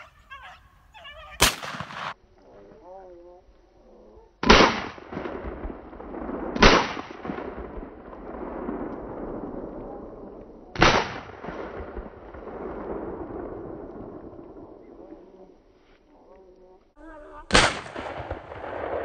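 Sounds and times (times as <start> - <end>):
shotgun blasts with echo: 1.4 - 2.2, 4.4 - 10.0, 10.7 - 15.0, 17.5 - 19.0.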